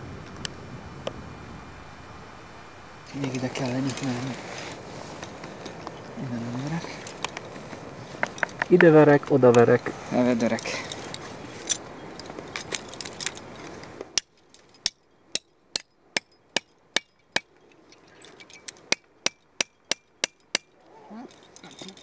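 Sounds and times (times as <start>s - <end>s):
wind noise: 0.0s - 14.2s
hammer striking steel piton: 18.9s - 20.7s.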